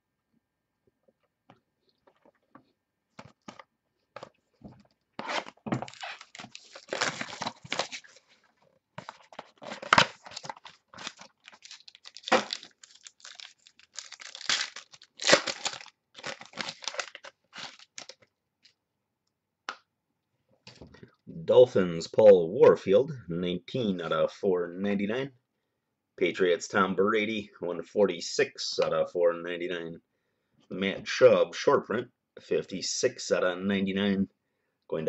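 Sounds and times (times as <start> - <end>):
card packaging tearing and crinkling: 5.2 - 8.4, 9.0 - 18.2.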